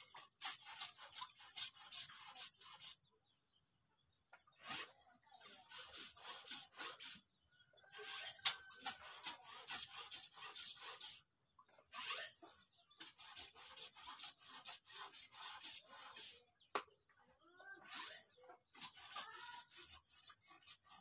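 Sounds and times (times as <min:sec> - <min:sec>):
rapid rhythmic scraping: 0:04.6 - 0:07.2, 0:07.9 - 0:11.2, 0:11.9 - 0:16.5, 0:17.8 - 0:21.0.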